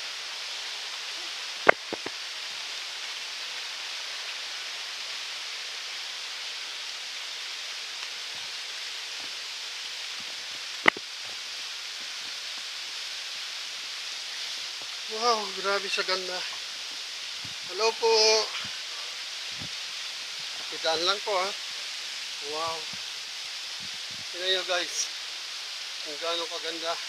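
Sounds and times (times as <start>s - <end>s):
waterfall rushing: 0.0s - 27.0s
sharp clicks: 10.8s - 11.0s.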